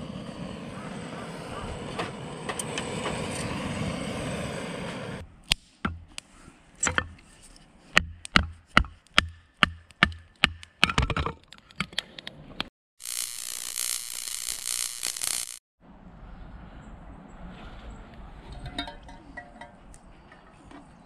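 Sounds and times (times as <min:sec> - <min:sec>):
baton striking knife through wood: 0:05.4 - 0:06.2, 0:07.9 - 0:11.0.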